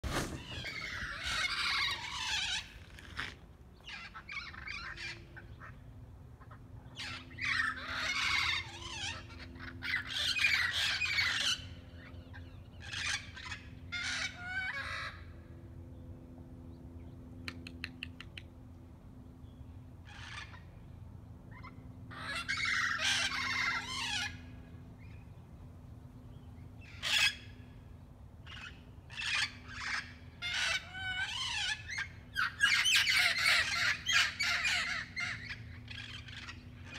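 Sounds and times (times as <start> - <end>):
faint steady hum: 0.3 - 36.9
parrots squawking: 0.4 - 5.7, 6.4 - 15.1, 20.1 - 20.6, 21.5 - 24.5, 26.8 - 27.5, 28.5 - 36.9.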